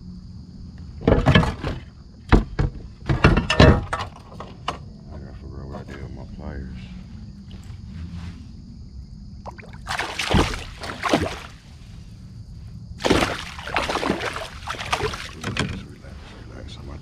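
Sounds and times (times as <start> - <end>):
fish splashing in water: 9.4 - 11.8, 13.0 - 15.8.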